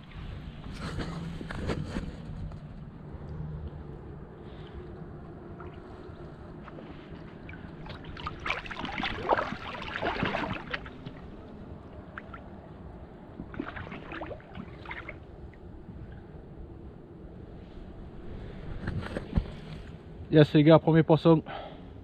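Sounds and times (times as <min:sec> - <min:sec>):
water splashing and sloshing: 0:00.0 - 0:16.7
low steady rumble: 0:00.0 - 0:22.0.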